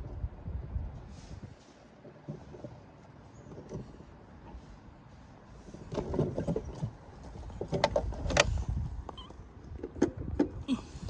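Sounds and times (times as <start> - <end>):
wheels and coupler clanking: 2.0 - 11.0.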